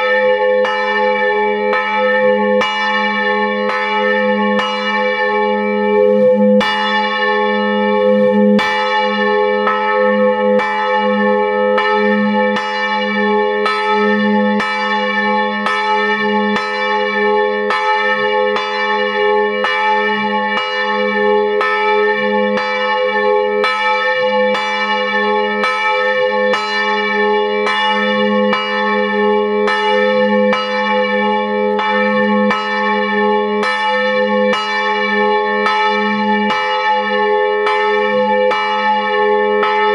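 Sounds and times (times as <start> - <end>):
church bell pealing: 0.0 - 39.9.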